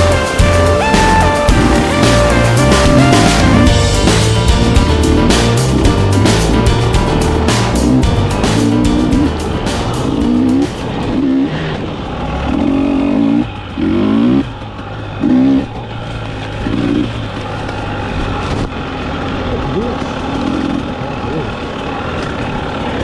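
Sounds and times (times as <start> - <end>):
music: 0.0 - 11.2
dirt bike engine revving: 0.0 - 23.0.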